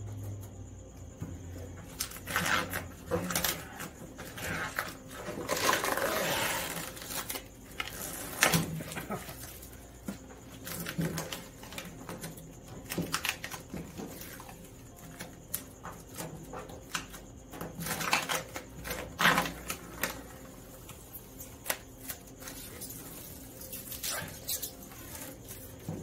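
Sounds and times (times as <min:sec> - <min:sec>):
vinyl film crinkling and rubbing: 0:02.0 - 0:14.6.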